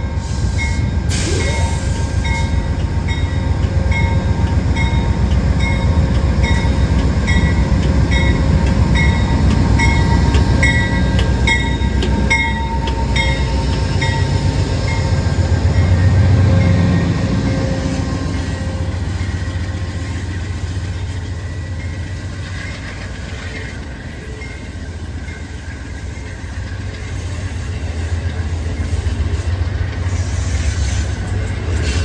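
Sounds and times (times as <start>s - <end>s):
diesel locomotive engine rumble: 0.0s - 32.0s
passenger cars rolling on rails: 0.0s - 32.0s.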